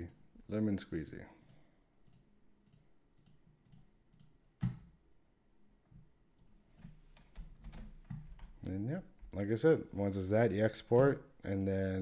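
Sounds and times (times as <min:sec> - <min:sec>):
computer mouse clicks: 0:01.4 - 0:04.8.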